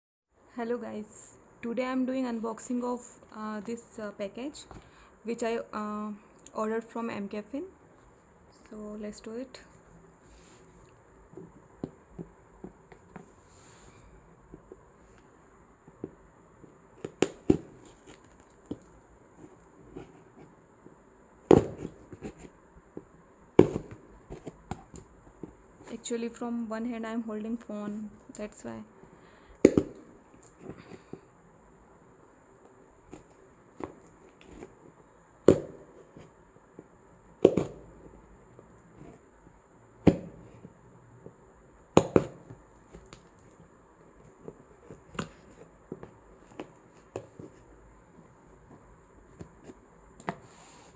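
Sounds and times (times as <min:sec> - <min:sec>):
sharp knocks on cardboard parcel: 0:21.4 - 0:22.4, 0:23.6 - 0:24.8, 0:35.4 - 0:36.0, 0:37.4 - 0:37.8, 0:40.0 - 0:40.5, 0:42.0 - 0:42.6.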